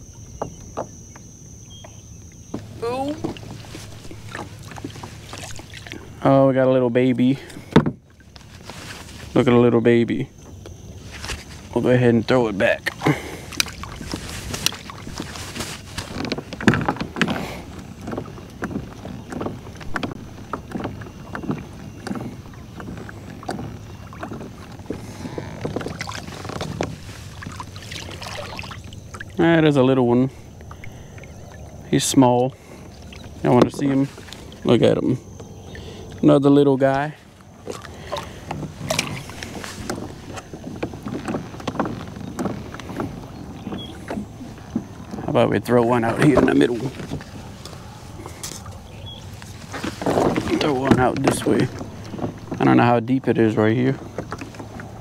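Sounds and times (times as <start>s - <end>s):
water lapping against kayak hull: 0.0s - 55.0s
gear knocking against hull: 11.8s - 31.0s, 37.7s - 47.5s, 48.8s - 55.0s
water dripping: 25.8s - 29.4s.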